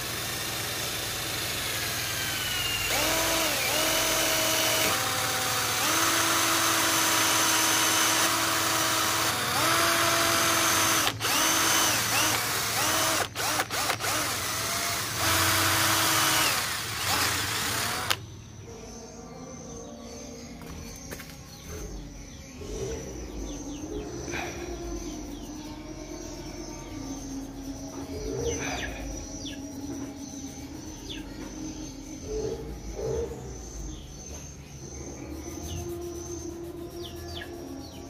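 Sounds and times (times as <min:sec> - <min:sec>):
electric drill whining: 0:00.0 - 0:18.2.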